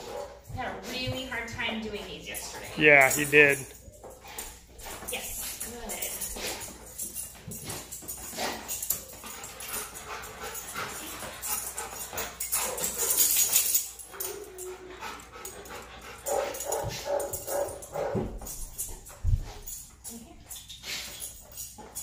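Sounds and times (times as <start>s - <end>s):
dog whining: 14.1s - 15.3s.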